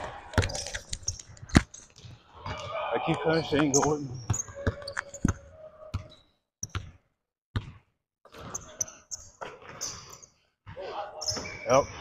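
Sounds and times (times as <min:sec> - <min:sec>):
basketball bouncing on hardwood floor: 0:04.6 - 0:08.5.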